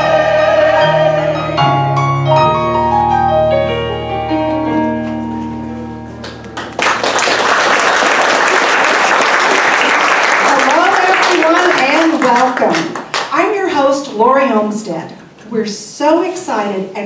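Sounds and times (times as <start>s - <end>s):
piano descending notes: 0.0s - 9.6s
audience applause: 6.2s - 13.3s.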